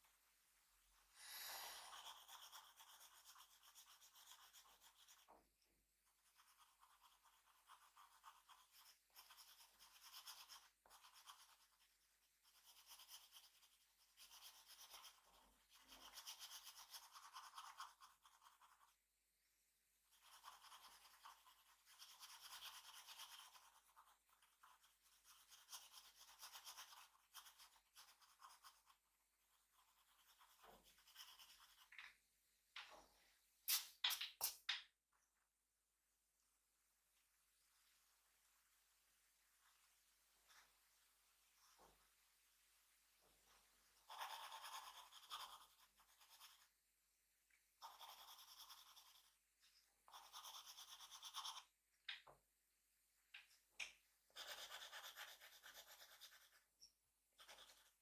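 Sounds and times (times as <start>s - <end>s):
drawing tool scratching on paper: 1.3s - 5.3s, 6.2s - 19.0s, 20.1s - 31.9s, 44.0s - 46.8s, 47.8s - 49.4s, 50.1s - 51.8s, 54.3s - 56.7s, 57.4s - 58.0s.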